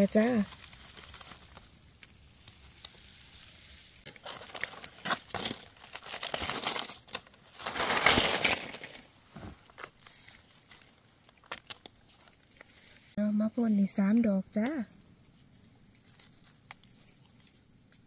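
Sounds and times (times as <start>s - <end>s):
dry leaves rustling: 0.0s - 13.2s.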